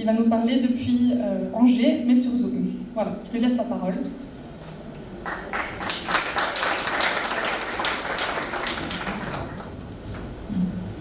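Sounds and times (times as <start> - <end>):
audience applauding: 5.2 - 9.9.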